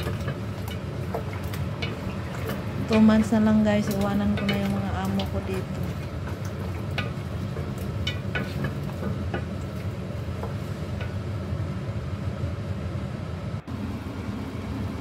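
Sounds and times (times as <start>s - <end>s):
spatula knocking and scraping pot: 0.0s - 11.2s.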